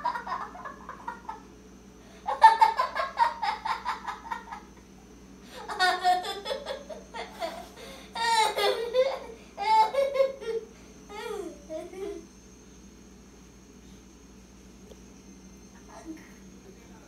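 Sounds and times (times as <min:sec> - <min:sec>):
child laughing: 0:00.0 - 0:01.4, 0:02.2 - 0:04.7, 0:05.6 - 0:12.3.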